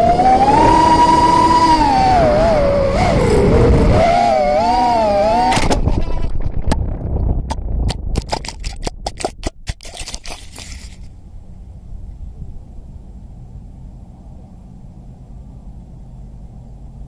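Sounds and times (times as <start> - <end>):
drone motors whining: 0.0 - 7.7
camera tumbling knocks and clicks: 5.5 - 11.1.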